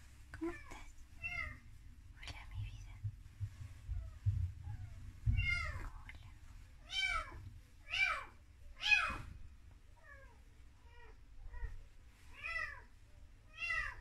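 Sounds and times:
cat meowing: 0.5 - 1.6, 5.3 - 5.9, 6.8 - 9.3, 10.0 - 12.9, 13.5 - 14.0.

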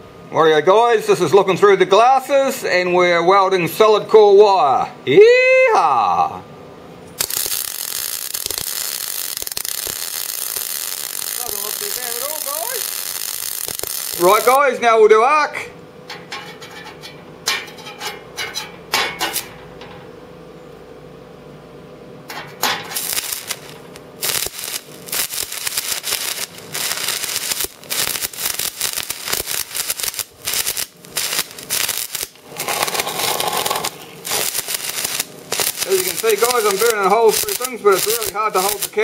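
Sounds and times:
welding arc crackling: 7.1 - 14.8, 22.3 - 39.0.

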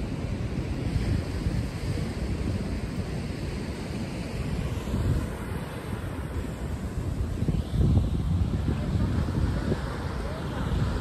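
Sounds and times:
ocean surf breaking: 0.0 - 11.0
wind buffeting microphone: 0.0 - 11.0.

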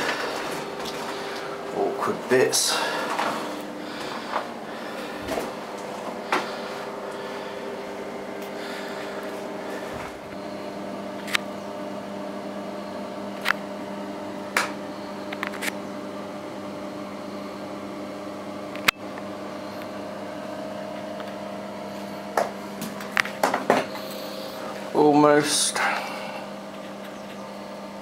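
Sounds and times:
steady machine hum: 0.0 - 28.0.

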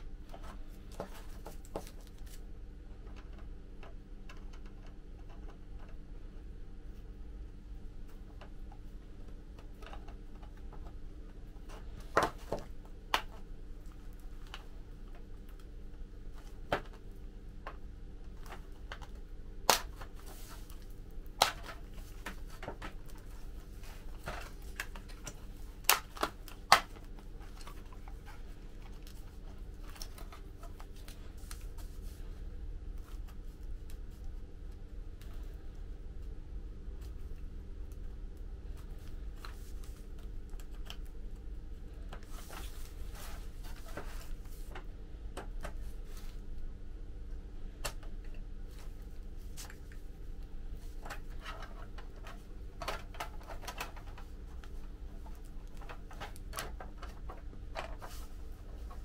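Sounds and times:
steady low hum: 0.0 - 59.0
plastic parts clicking: 51.0 - 59.0.

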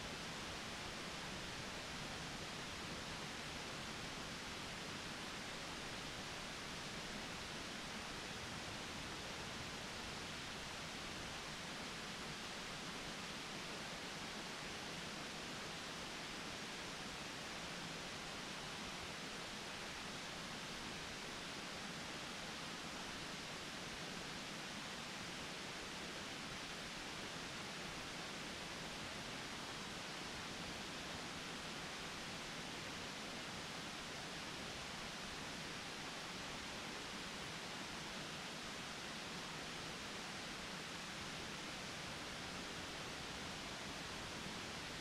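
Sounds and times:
steady background hiss: 0.0 - 45.0.

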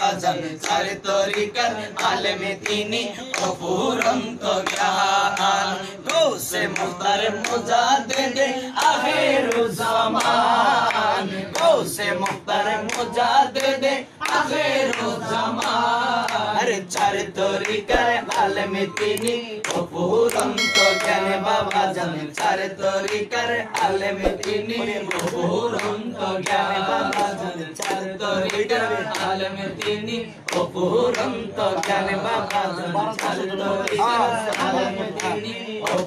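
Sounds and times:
men singing devotional song: 0.0 - 36.0
rhythmic beat of sharp strikes: 20.3 - 22.6.

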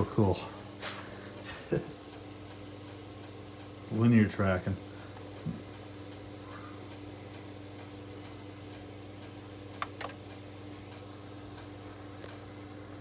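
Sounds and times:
turntable low hum: 0.0 - 13.0
faint regular ticking: 1.7 - 13.0
sharp clicks: 9.7 - 11.0.

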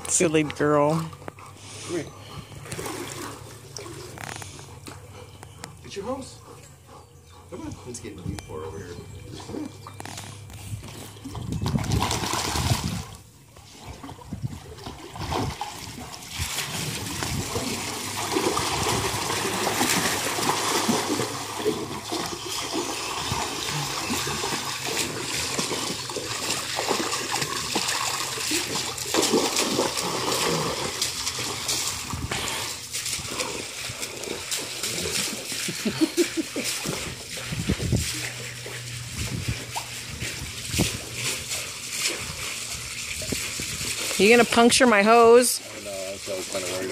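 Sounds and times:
dog splashing in water: 9.5 - 13.2, 13.8 - 46.9
hose water running: 15.5 - 46.9.

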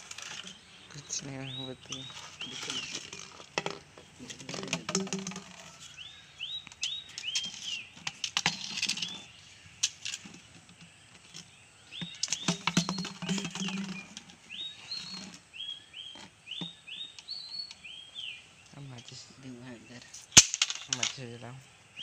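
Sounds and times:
small bird chirping: 0.0 - 22.0
sharp clicks and knocks: 1.9 - 5.9, 6.6 - 14.4.

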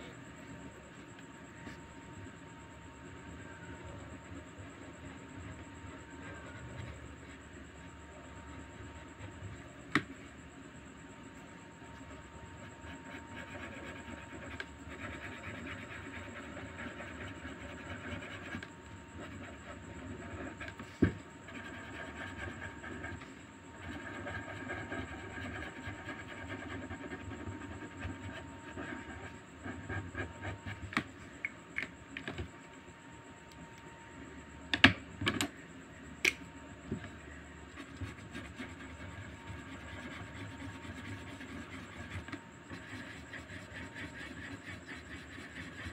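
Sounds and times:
marker scratching on paper: 12.0 - 20.8, 21.5 - 30.9, 37.7 - 45.9.

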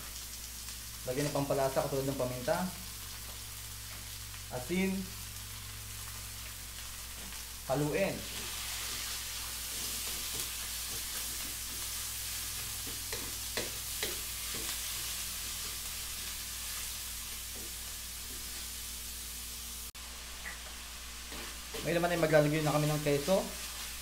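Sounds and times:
meat sizzling in a wok: 0.0 - 24.0
wooden spatula scraping wok: 8.2 - 18.7, 21.2 - 24.0.

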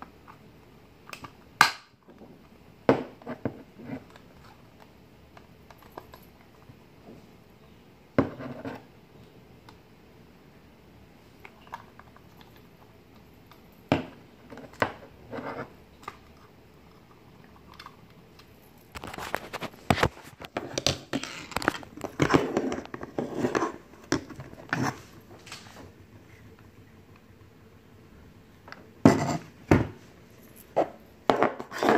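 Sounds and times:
clattering and rubbing: 18.6 - 26.8, 29.0 - 31.9.

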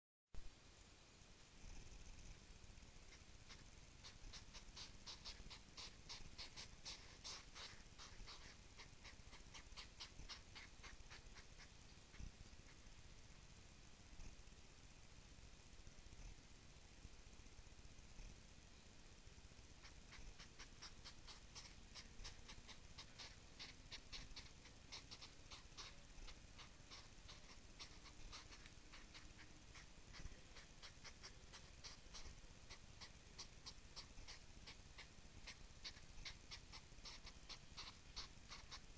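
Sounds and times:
hedgehogs huffing: 3.1 - 11.8, 19.8 - 38.9.

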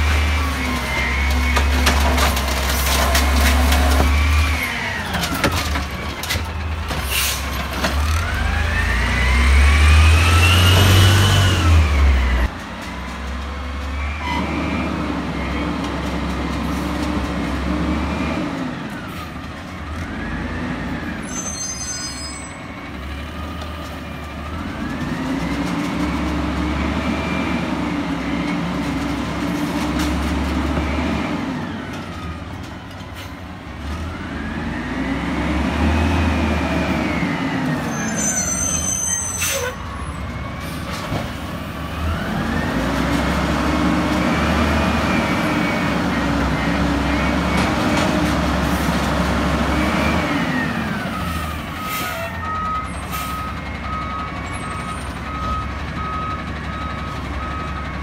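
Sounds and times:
garbage truck diesel engine revving: 7.4 - 12.5, 33.7 - 38.0, 41.3 - 51.8.

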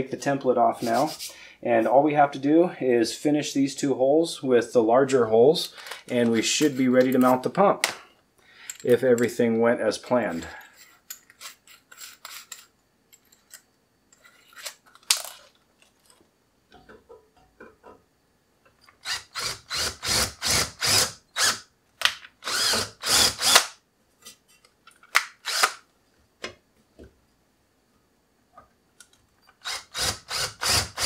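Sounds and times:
cordless drill bursts: 19.0 - 21.7, 22.4 - 23.8, 25.4 - 25.8, 29.6 - 31.0.

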